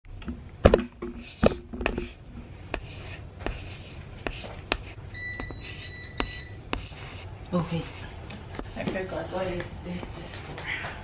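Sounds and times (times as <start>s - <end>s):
low steady hum: 0.1s - 11.0s
footsteps on a hard floor: 4.3s - 7.0s, 7.9s - 11.0s.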